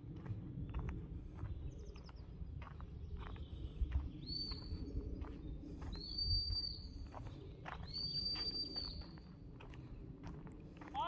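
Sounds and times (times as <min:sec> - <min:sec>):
footsteps on dirt path: 0:00.0 - 0:11.0
wind rumble: 0:00.0 - 0:11.0.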